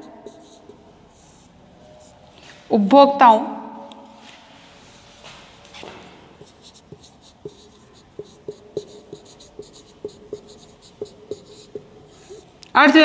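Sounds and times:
marker squeaking on whiteboard: 0:00.0 - 0:02.2, 0:05.7 - 0:12.6.

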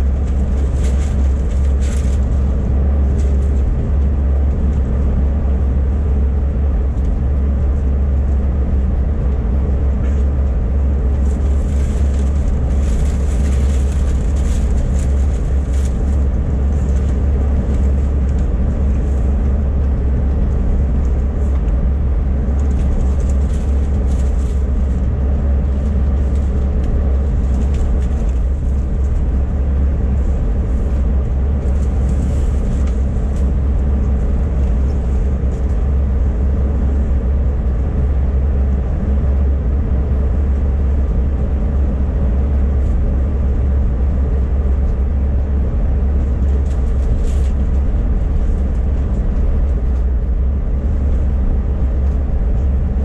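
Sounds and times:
airliner cabin rumble: 0:00.0 - 0:53.0.

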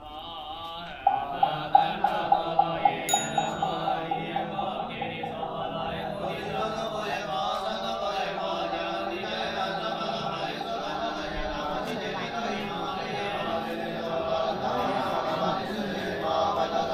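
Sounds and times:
monks chanting in unison: 0:00.0 - 0:16.9
steady knocked beat: 0:01.0 - 0:07.0
small bell ringing: 0:01.2 - 0:05.9.

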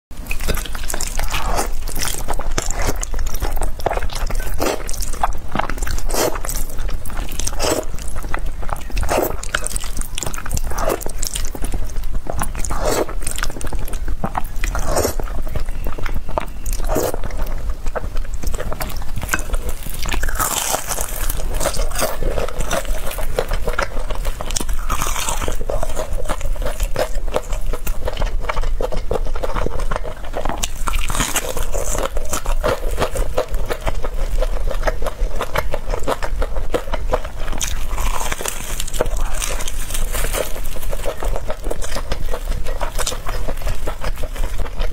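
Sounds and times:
chewing and slurping noodles: 0:00.2 - 0:44.9
crunchy bites: 0:00.2 - 0:44.9.

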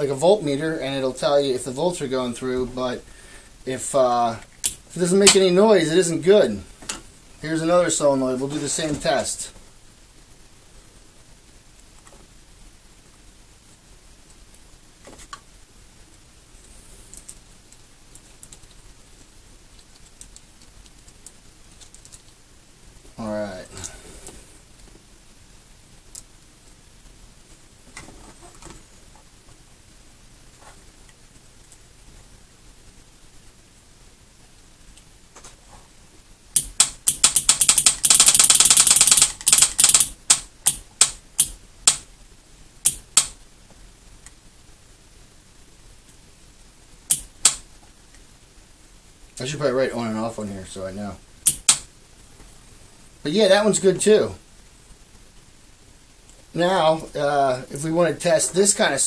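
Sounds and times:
metal clips clicking onto terminals: 0:04.5 - 0:05.4, 0:36.6 - 0:42.0, 0:51.4 - 0:51.9.

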